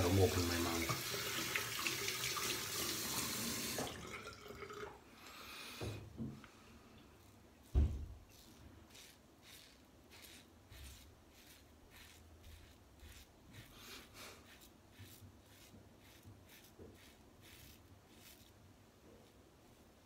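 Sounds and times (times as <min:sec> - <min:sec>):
razor scraping stubble: 0:08.2 - 0:18.6.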